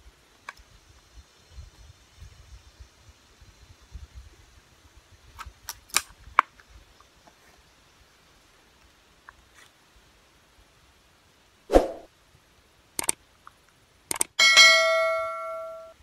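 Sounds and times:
air rifle action clicks: 13.0 - 13.2, 14.1 - 14.3.

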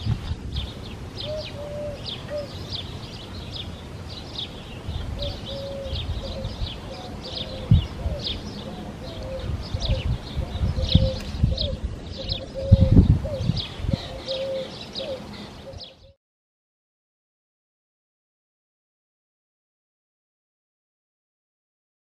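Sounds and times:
birds chirping: 0.0 - 16.2
lower drawn-out bird calls: 0.6 - 16.2.

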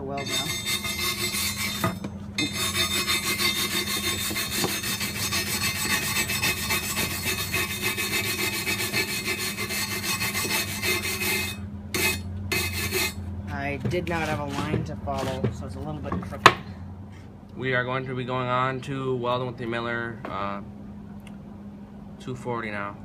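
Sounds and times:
wire brush scrubbing steel: 0.0 - 13.2.

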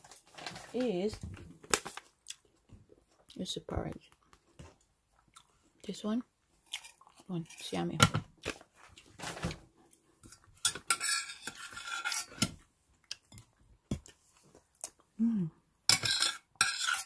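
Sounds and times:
metal spoon scraping a pot: 6.7 - 7.8, 10.2 - 12.6, 15.9 - 17.0.

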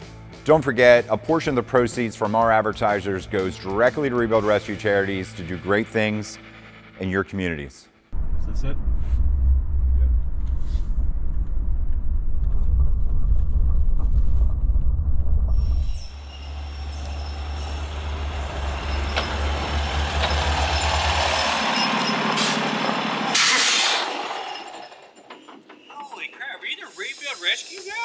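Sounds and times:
car driving rumble: 8.2 - 23.4
air brakes hissing: 16.1 - 24.5, 25.8 - 28.0
truck engine idling: 16.4 - 23.5.

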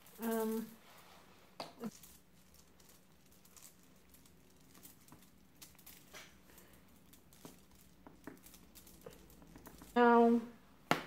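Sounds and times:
foil crinkling: 1.8 - 10.0.

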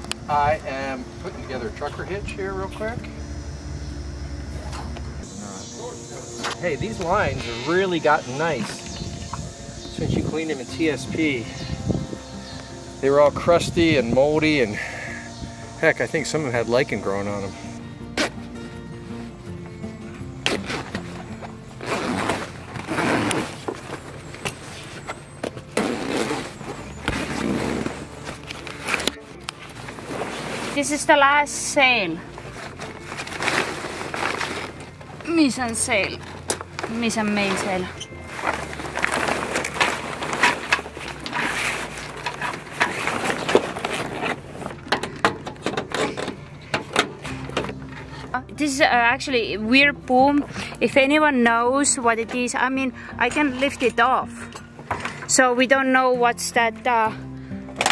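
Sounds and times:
background music: 0.0 - 57.9
sailcloth rustling and crumpling: 20.4 - 31.4, 32.2 - 44.9.

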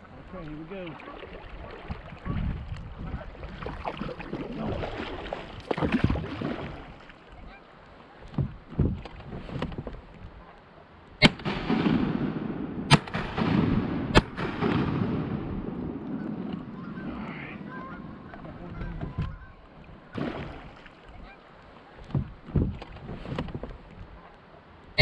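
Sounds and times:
water and paddle noise: 0.0 - 25.0
shotgun shots: 11.2 - 15.7
geese honking: 16.1 - 19.8, 21.1 - 21.5.

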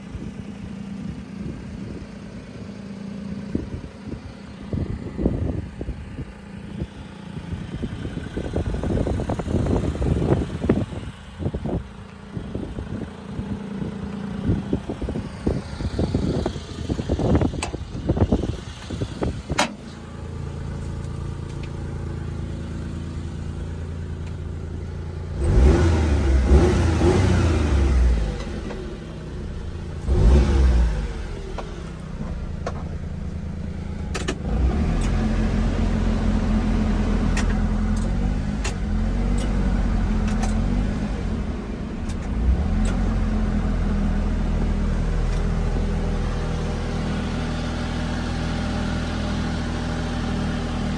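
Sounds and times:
small truck engine idling: 0.0 - 25.4
engine revving: 24.9 - 50.9.

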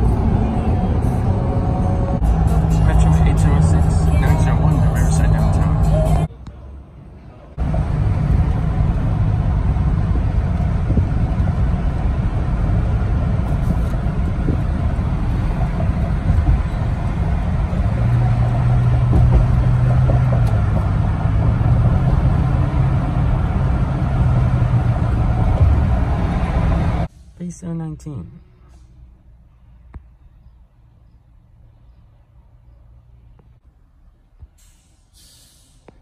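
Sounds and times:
tyre and engine rumble: 0.0 - 27.4.

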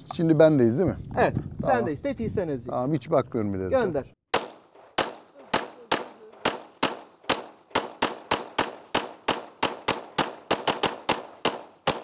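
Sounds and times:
pistol shots: 4.3 - 12.0.

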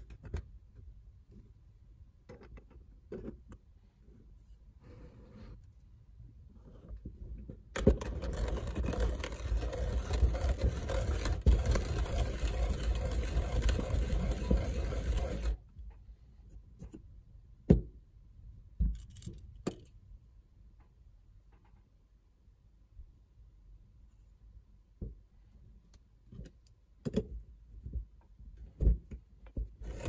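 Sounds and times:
hand coffee grinder rattling: 8.0 - 15.6.

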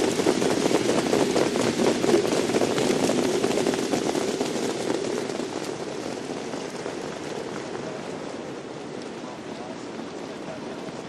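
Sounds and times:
clatter of hooves and wheels: 0.0 - 11.0.

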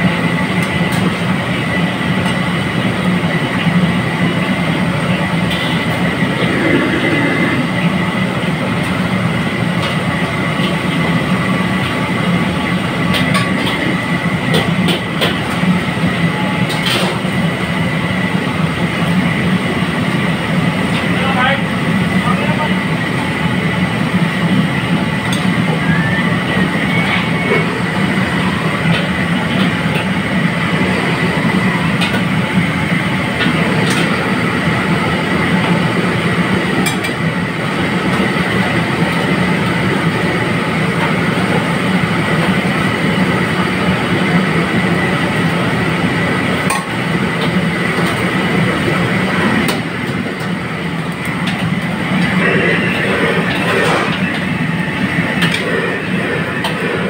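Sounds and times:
gas burner roaring: 0.0 - 57.0
oil frying in wok: 27.2 - 52.4.

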